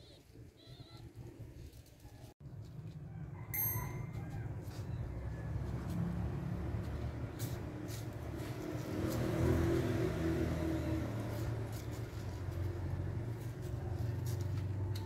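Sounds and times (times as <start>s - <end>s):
vehicle engine rumble: 1.1s - 15.0s.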